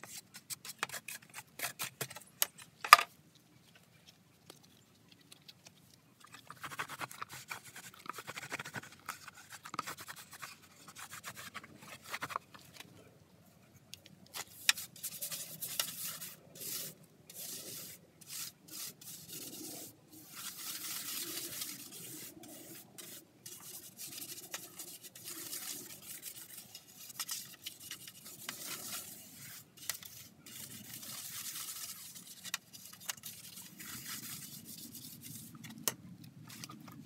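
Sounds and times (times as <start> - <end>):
brush scrubbing plastic: 6.3 - 12.3, 14.4 - 35.6.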